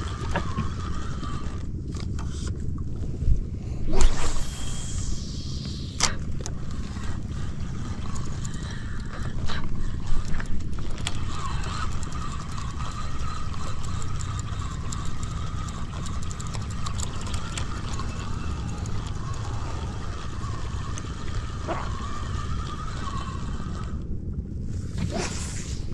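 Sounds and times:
spinning reel whirring: 0.0s - 3.0s, 3.9s - 25.9s
low steady rumble: 0.0s - 25.9s
fishing reel clicks: 4.2s - 24.0s.

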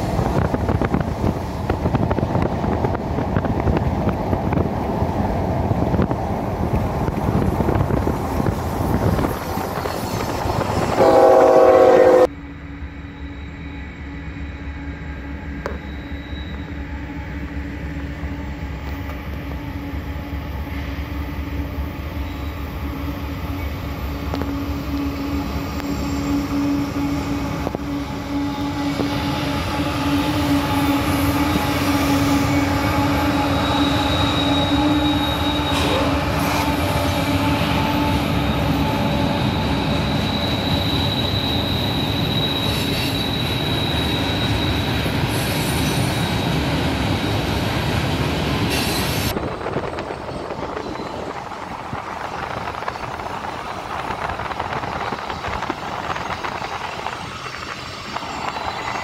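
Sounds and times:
diesel locomotives running: 0.0s - 59.0s
train cars rolling by: 0.0s - 59.0s
high wheel squeal: 9.0s - 12.3s, 13.0s - 17.4s, 22.1s - 47.6s, 48.6s - 49.4s, 50.0s - 51.5s, 55.0s - 59.0s.

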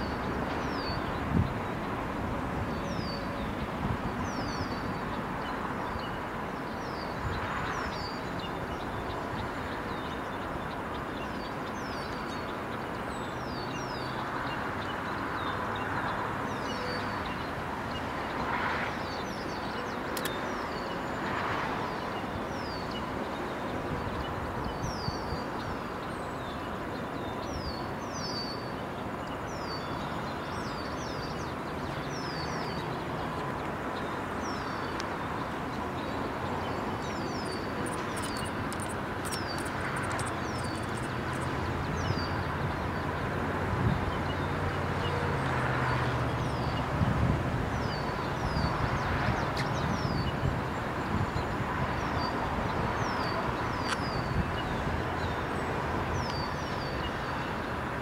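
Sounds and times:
outdoor background noise: 0.0s - 58.0s
small birds chirping: 24.8s - 43.1s
very high ticks: 37.4s - 41.5s.

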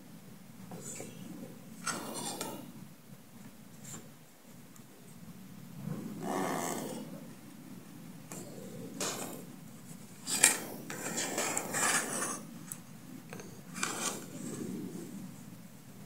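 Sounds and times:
light rustles and scrapes: 13.4s - 15.5s.

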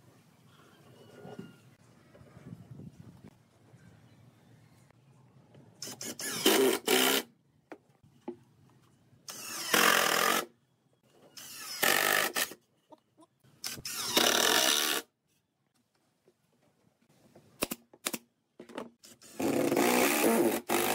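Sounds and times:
impact driver driving screws: 5.8s - 7.3s, 13.6s - 15.1s.

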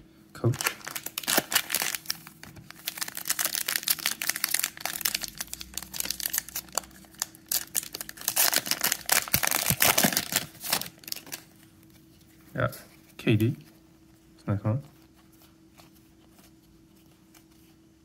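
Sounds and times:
plastic wrapper crinkling and tearing: 0.4s - 11.5s.

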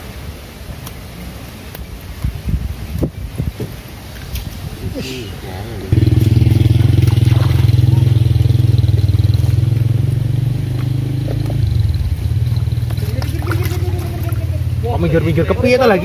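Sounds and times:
small engine running: 6.0s - 12.6s.

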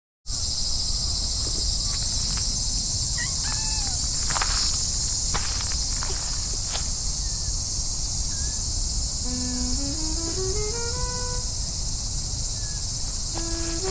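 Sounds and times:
insect chorus drone: 0.3s - 13.9s
footsteps on grass: 4.0s - 7.2s, 13.4s - 13.9s
rising musical notes: 9.2s - 11.5s, 13.4s - 13.9s.

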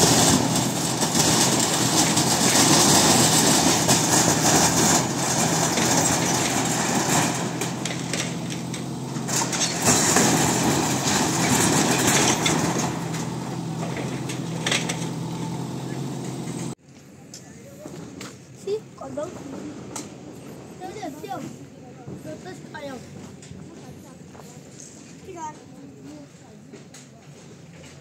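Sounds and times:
diesel engine running: 0.0s - 16.8s
metal roofing sheets crunching: 0.0s - 16.8s.

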